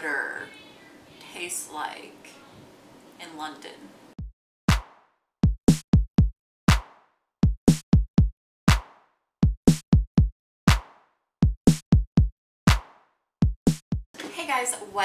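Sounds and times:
electronic drum beat: 4.2 - 14.1.

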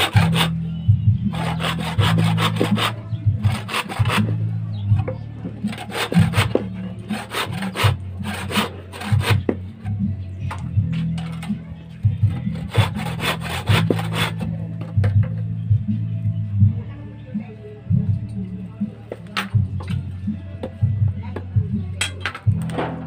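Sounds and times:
hand saw rasping on wood: 0.0 - 0.6, 1.3 - 4.4, 5.7 - 9.6, 12.3 - 14.5.

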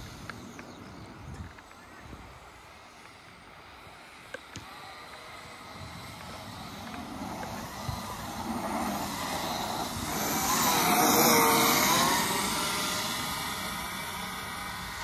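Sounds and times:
rc truck electric motor whine: 0.0 - 15.0
tyre noise: 5.6 - 14.4.

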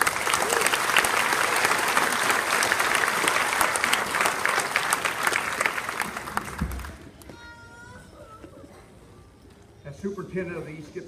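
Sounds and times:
audience applauding: 0.0 - 7.1.

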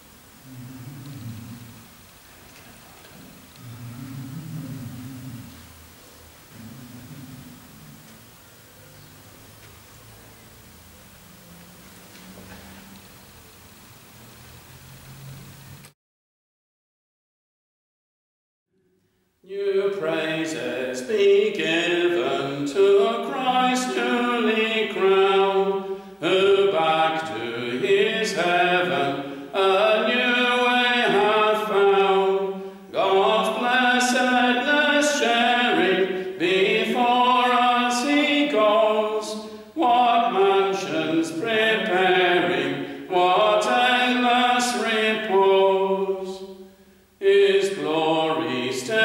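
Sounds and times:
voices singing a hymn: 19.5 - 49.0.

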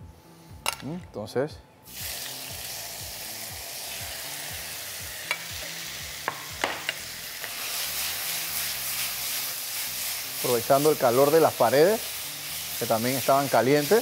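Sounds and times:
chicken sizzling in oil: 1.9 - 14.0.

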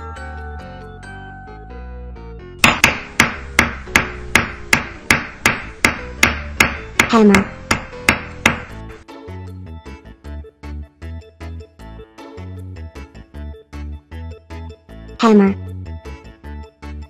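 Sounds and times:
hammer blows ringing: 2.6 - 8.8.

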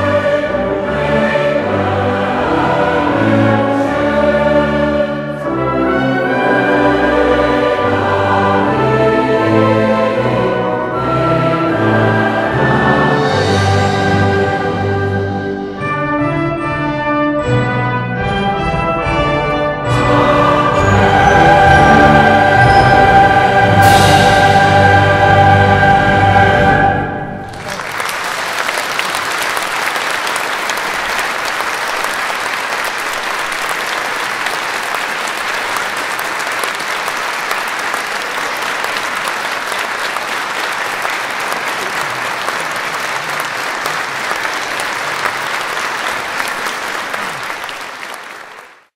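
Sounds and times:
choirs and wind band final chord: 0.0 - 15.8, 19.8 - 27.7
audience applause: 27.4 - 48.9.

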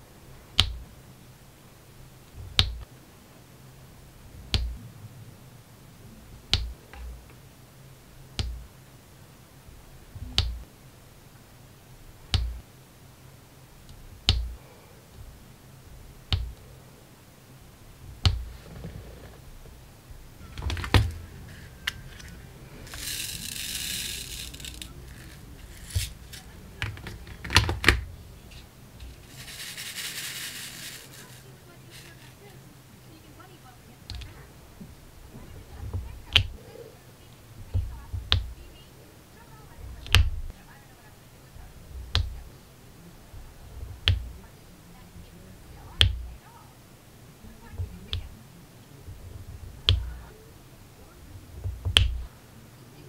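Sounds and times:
beads rattling in plastic tray: 20.6 - 28.0, 29.0 - 32.5
pen applicator clicking: 22.9 - 27.7.

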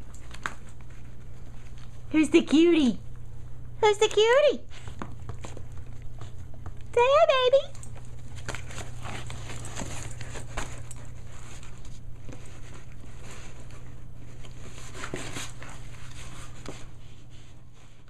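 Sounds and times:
steady low hum: 0.0 - 18.0
dog scratching cardboard box: 12.3 - 17.0.

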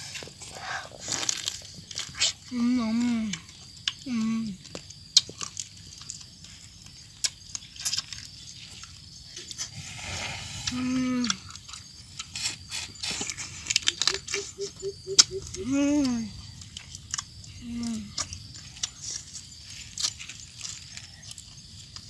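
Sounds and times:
chewing: 0.0 - 22.0
short pitched calls: 13.8 - 16.2.

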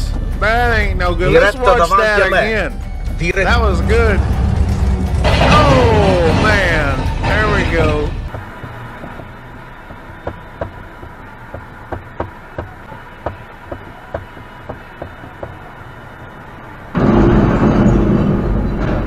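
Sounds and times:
truck crashing and scraping on bridge: 3.5 - 19.0
faint irregular ticking: 8.3 - 16.0.

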